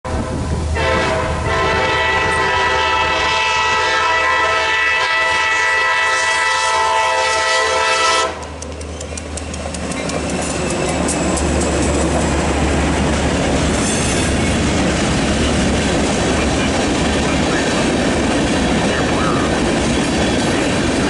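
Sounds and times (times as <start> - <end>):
locomotive air horn blast: 0.7 - 8.6
train running noise with clicking: 5.1 - 21.0.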